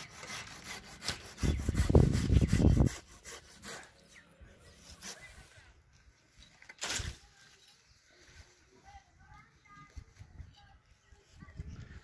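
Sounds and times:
hand saw cutting tree limb: 0.0s - 4.1s, 4.8s - 5.4s.

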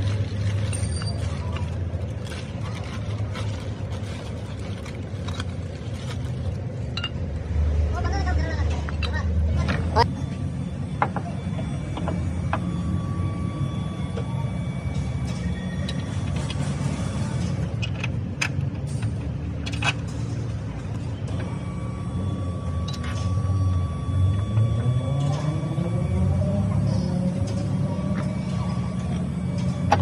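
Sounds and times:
low mechanical rumble: 0.0s - 30.0s.

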